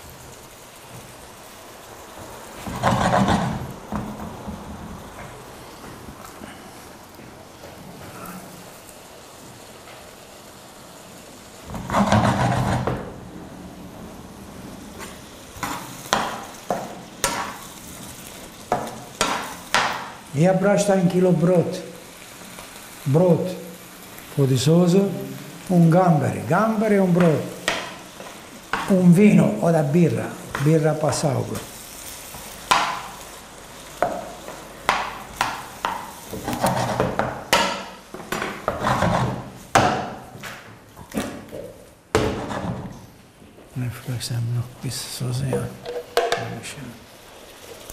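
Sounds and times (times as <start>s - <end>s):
food sizzling in frying pan: 0.0s - 47.9s
metal spatula scraping a frying pan: 2.6s - 3.7s, 11.7s - 13.0s, 35.4s - 37.3s, 38.5s - 39.6s, 42.2s - 43.0s
spoon stirring and knocking pan: 11.7s - 13.1s, 15.6s - 17.7s, 18.7s - 20.2s, 27.0s - 29.2s, 32.6s - 33.2s, 34.0s - 40.5s, 41.1s - 43.0s, 45.5s - 46.5s.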